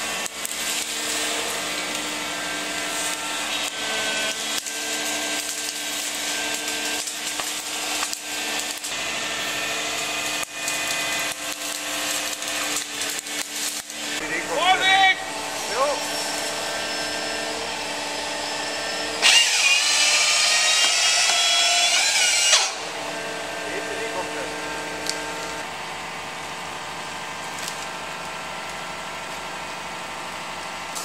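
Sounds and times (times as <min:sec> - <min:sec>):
branches cracking and snapping: 0:00.0 - 0:14.2, 0:27.4 - 0:29.5
excavator engine humming: 0:13.9 - 0:19.2.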